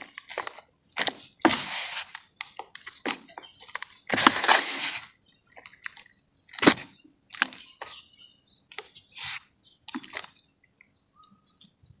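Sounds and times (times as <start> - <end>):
dry dirt crumbled by hand: 0.0 - 8.0.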